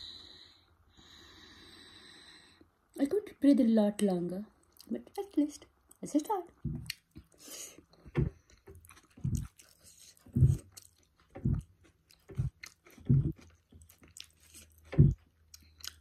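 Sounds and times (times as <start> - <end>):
wet chewing: 6.6 - 7.4, 8.1 - 16.0.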